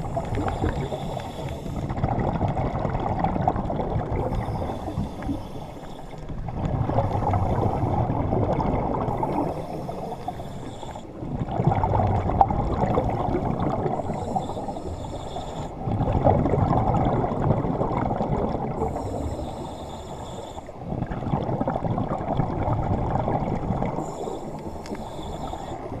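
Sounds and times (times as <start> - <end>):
regulator hiss: 0.0 - 1.9, 24.0 - 26.0
scuba regulator bubbles gurgling: 0.0 - 26.0.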